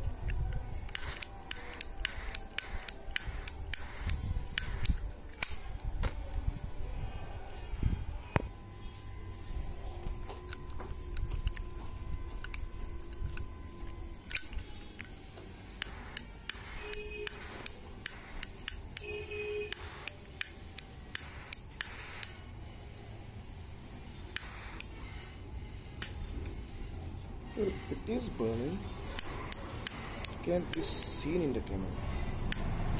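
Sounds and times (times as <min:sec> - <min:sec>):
lighter clicking: 0:00.8 - 0:06.2, 0:14.2 - 0:22.4, 0:24.3 - 0:25.0, 0:26.0 - 0:26.6, 0:29.1 - 0:31.3, 0:32.4 - 0:32.8.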